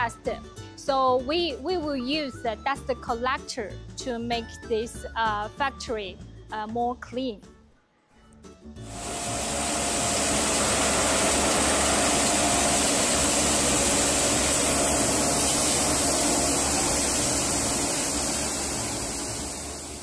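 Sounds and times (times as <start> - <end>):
machinery rushing hiss: 8.8 - 20.0.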